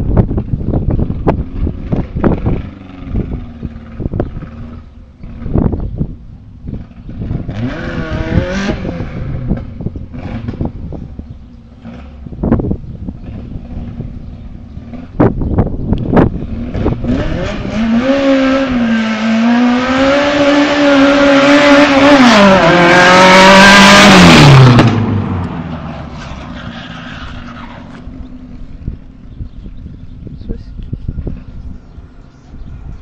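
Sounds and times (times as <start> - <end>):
car engine revving hard: 6.8 - 10.7, 16.2 - 25.7.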